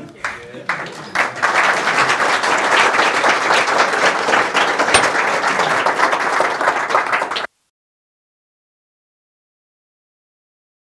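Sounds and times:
small group applauding: 0:00.0 - 0:07.5.

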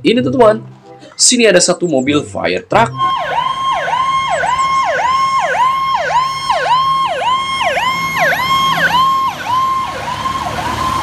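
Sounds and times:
fire truck siren: 0:02.9 - 0:11.0.

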